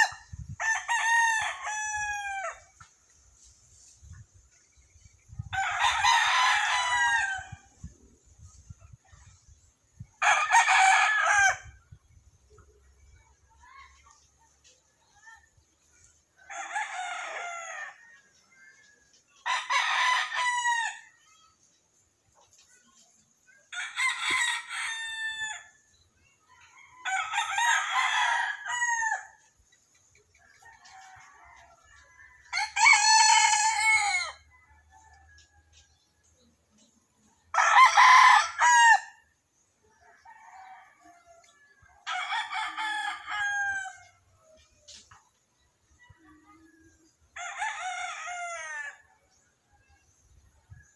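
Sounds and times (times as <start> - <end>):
rooster crowing: 30.7 - 35.8, 37.5 - 39.2.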